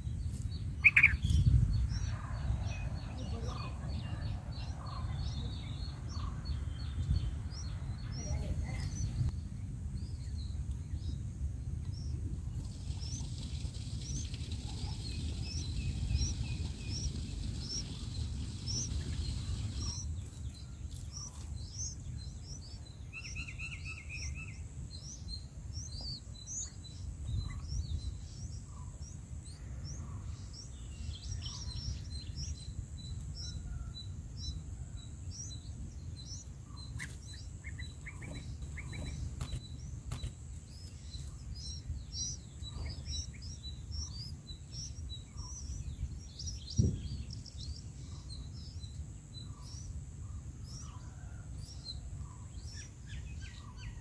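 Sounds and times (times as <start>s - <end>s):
low outdoor rumble: 0.0s - 51.0s
birds chirping: 0.0s - 54.0s
bird call series: 0.8s - 1.2s.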